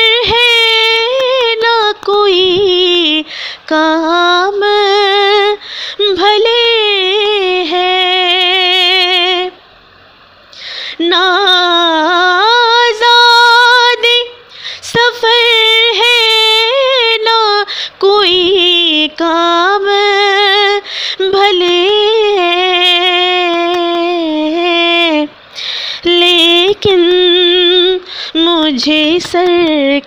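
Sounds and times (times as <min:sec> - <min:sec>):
woman singing solo: 0:26.0 - 0:30.0.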